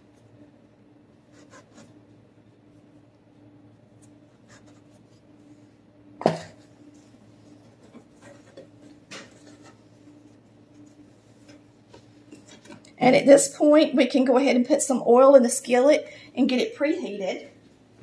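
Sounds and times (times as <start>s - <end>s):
faint steady hum: 0.0s - 18.0s
soft scraping on dough: 1.1s - 2.9s, 3.7s - 5.9s, 6.6s - 12.7s.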